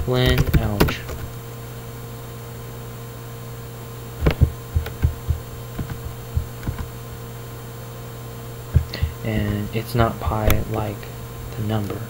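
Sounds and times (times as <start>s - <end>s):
steady electrical hum: 0.0s - 12.0s
low thumping clicks on laptop: 4.2s - 7.0s, 8.7s - 9.7s.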